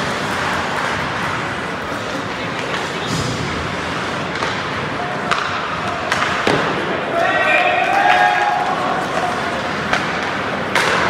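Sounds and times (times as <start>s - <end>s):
skates scraping on ice: 0.0s - 6.9s
hockey sticks and puck clacking: 0.0s - 11.0s.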